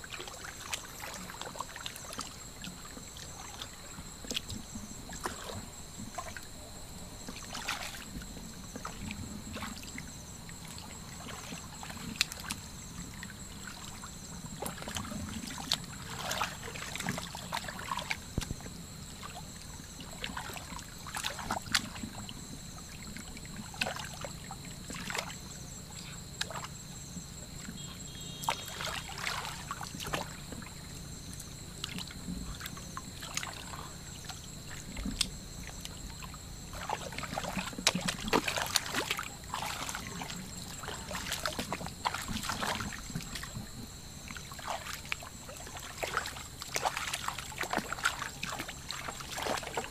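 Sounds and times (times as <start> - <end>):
hands splashing in shallow water: 28.4 - 30.4, 36.7 - 43.5, 44.4 - 49.9.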